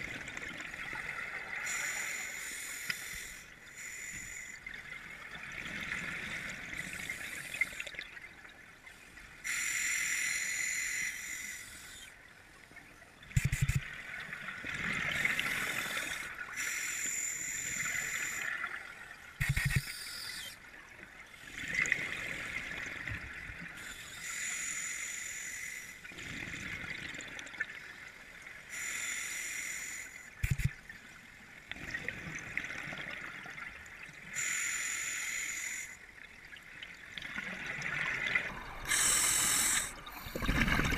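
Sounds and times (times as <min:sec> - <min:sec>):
regulator breathing and bubbles: 0:19.4 - 0:20.6, 0:37.4 - 0:40.9.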